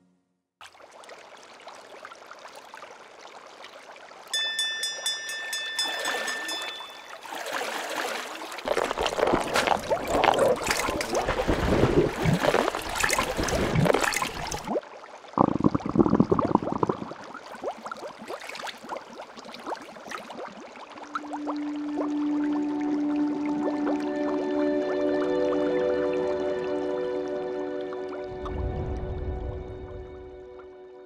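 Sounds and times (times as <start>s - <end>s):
water bubbling: 5.9s - 24.6s.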